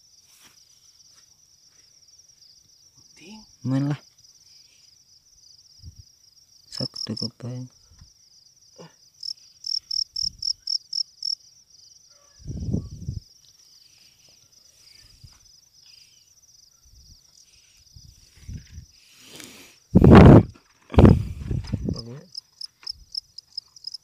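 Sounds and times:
cricket chirping loudly: 0.0s - 24.0s
faint crickets chirping: 0.0s - 24.0s.

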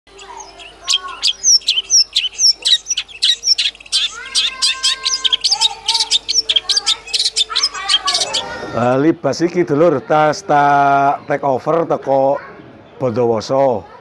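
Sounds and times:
bird chirping rapidly: 0.1s - 8.8s
bird whistles: 0.1s - 8.8s.

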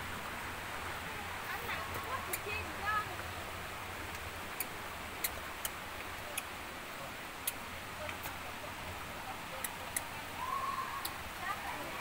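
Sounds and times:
outdoor ambience hiss: 0.0s - 12.0s
sharp clicks: 4.1s - 6.5s.

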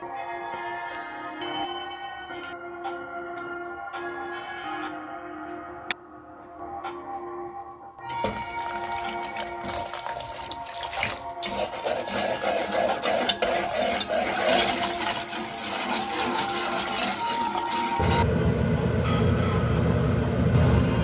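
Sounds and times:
water pouring into a pot: 8.1s - 18.2s
utensil stirring and clinking: 8.1s - 18.3s
low rumble of pot heating: 13.1s - 21.0s.

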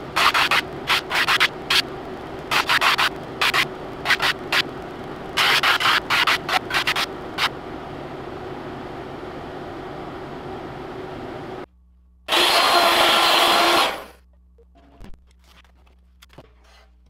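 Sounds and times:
harsh sanding rasps: 5.4s - 7.5s, 12.3s - 14.2s.

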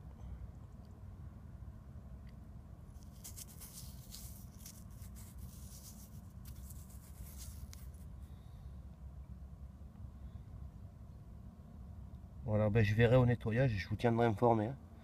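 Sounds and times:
low steady rumble: 0.0s - 15.0s
fingers rubbing a coin: 3.0s - 8.0s.

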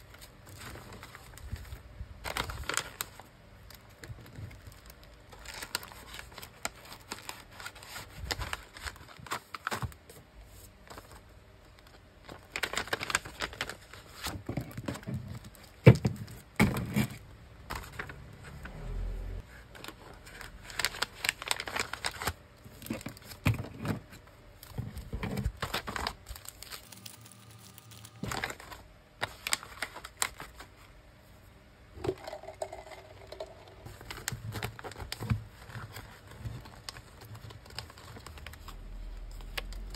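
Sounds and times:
plastic sleeves crinkling: 0.0s - 16.5s, 19.6s - 30.9s, 33.9s - 39.9s.

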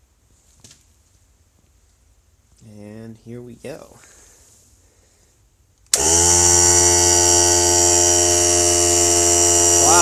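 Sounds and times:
air compressor running: 5.9s - 10.0s.

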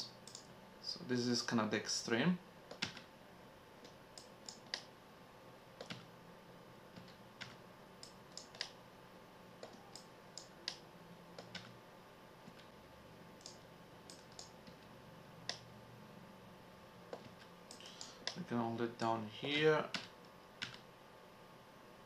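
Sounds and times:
faint steady hum: 0.0s - 22.0s
mouse and keyboard clicks: 0.2s - 0.5s, 7.0s - 8.8s, 13.4s - 14.8s.

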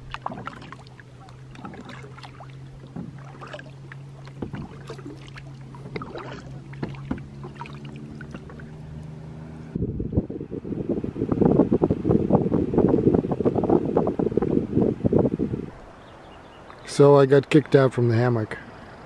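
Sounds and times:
kayak paddle dipping into water: 0.0s - 9.4s
water splashing and dripping: 0.0s - 9.4s
steady low hum: 0.0s - 16.0s.

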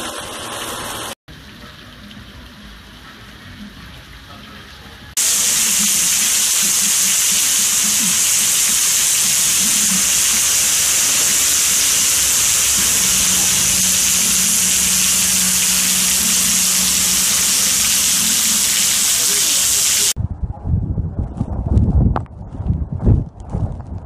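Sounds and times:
heavy rain pouring: 5.2s - 20.2s.

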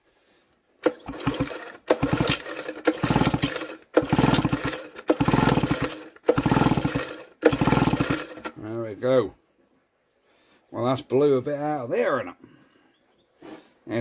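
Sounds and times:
pull-cord starter engine whirr: 0.8s - 8.6s.

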